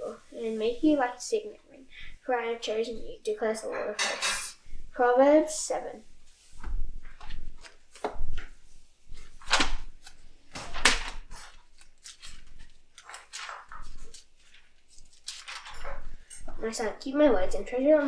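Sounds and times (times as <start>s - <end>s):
thin pages flipping: 6.4s - 16.3s.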